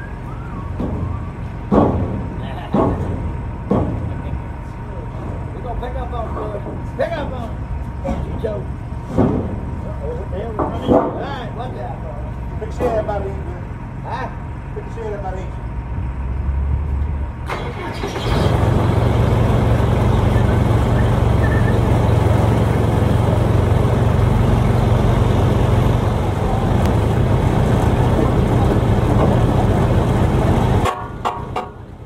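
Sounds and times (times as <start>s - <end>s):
farm machinery engine droning: 0.0s - 32.0s.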